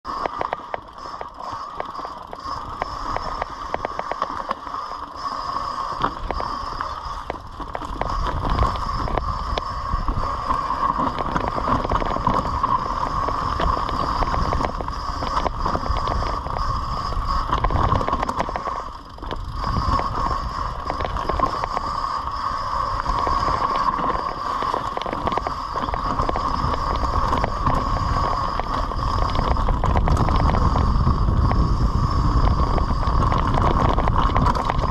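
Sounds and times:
bike rattling over bumps: 0:00.1 - 0:34.9.

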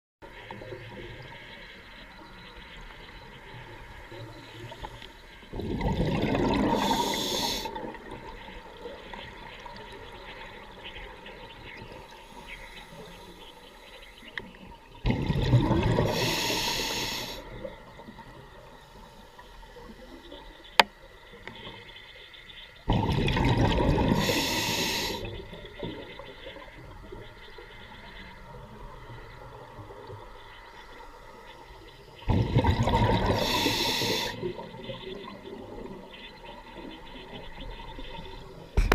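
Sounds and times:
scuba exhaust bubbles rushing: 0:05.5 - 0:12.1, 0:15.0 - 0:18.6, 0:22.9 - 0:27.3, 0:32.2 - 0:38.9
quiet hiss: 0:06.6 - 0:15.0, 0:16.0 - 0:22.9, 0:33.2 - 0:38.9.

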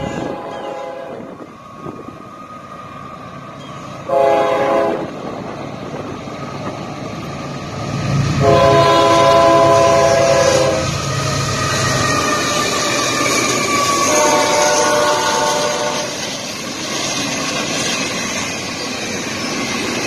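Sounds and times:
locomotive air horn blasts: 0:00.0 - 0:01.4, 0:04.0 - 0:05.1, 0:08.4 - 0:11.0, 0:13.9 - 0:16.2
rumble of approaching train: 0:00.0 - 0:20.0.

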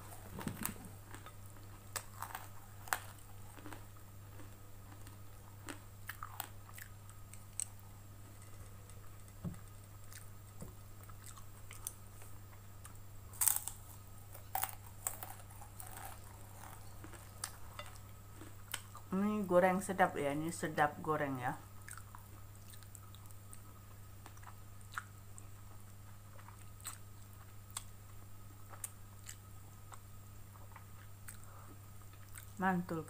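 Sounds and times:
close chewing: 0:00.0 - 0:07.8, 0:08.4 - 0:12.6, 0:21.8 - 0:27.9
crackers crunching: 0:00.0 - 0:19.1.

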